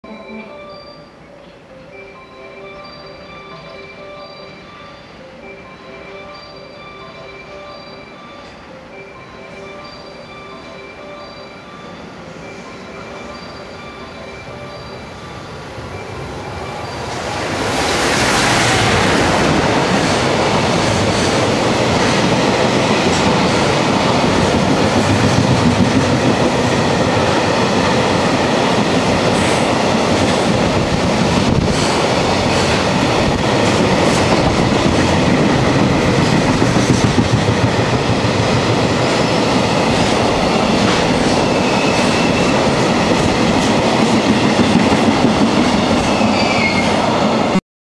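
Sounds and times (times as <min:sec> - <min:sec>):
train wheels rumbling on rails: 0:15.8 - 0:47.6
high wheel squeal: 0:39.0 - 0:42.7, 0:46.0 - 0:47.0.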